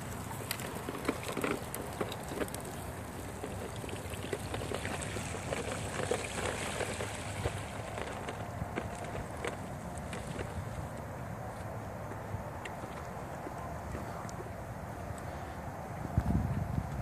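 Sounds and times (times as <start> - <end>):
water splashing and trickling: 0.0 - 11.0
wheels rolling through puddle: 0.0 - 17.0.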